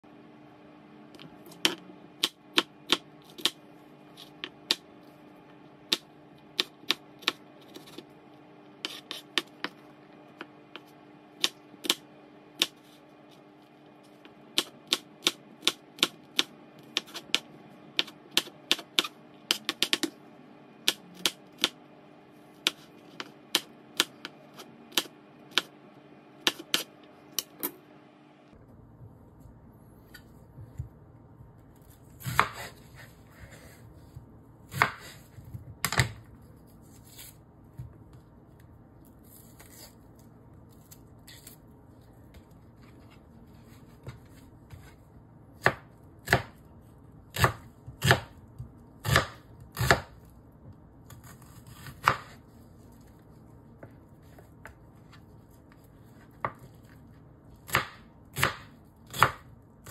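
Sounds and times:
knife chopping on wooden board: 32.2s - 33.1s, 34.1s - 36.2s, 45.6s - 46.6s, 47.3s - 50.2s, 51.2s - 52.4s, 57.7s - 59.9s.

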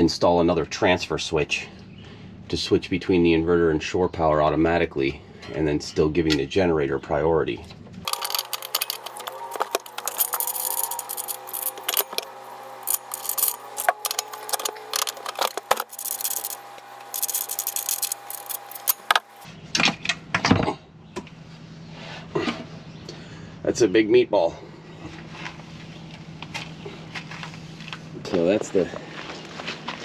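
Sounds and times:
cable lugs rattling: 8.1s - 19.4s
wrench clinking on metal nuts: 8.1s - 19.4s.

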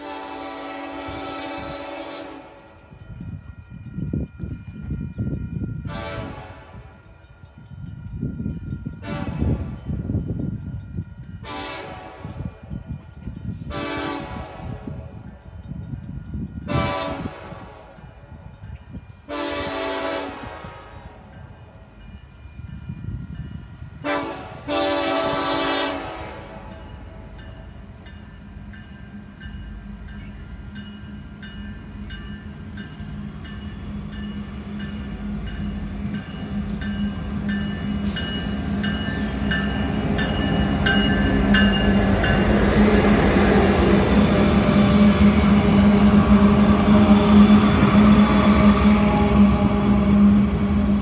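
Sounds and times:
locomotive horn blasts: 0.0s - 2.7s, 5.9s - 6.9s, 9.0s - 9.7s, 11.4s - 12.4s, 13.7s - 14.9s, 16.7s - 17.8s, 19.3s - 21.3s, 24.0s - 26.8s
diesel locomotive engines: 0.0s - 51.0s
train rumbling past: 0.0s - 51.0s.

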